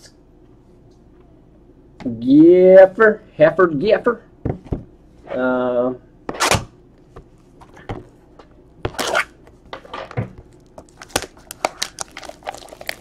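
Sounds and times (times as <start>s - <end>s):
wrapper crinkling: 10.5s - 13.0s
wrapper tearing: 10.6s - 13.0s.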